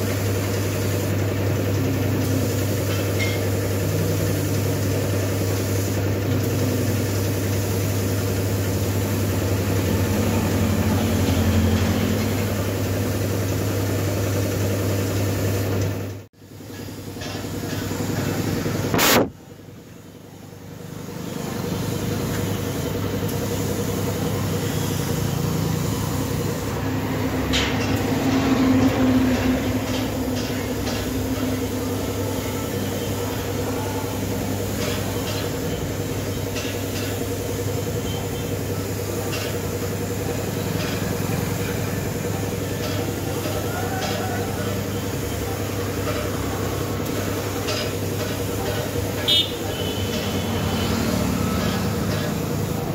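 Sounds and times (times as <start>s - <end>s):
paint spray gun hissing: 0.0s - 11.2s, 21.2s - 26.8s
air compressor humming: 0.0s - 52.9s
sharp click: 18.9s - 19.3s.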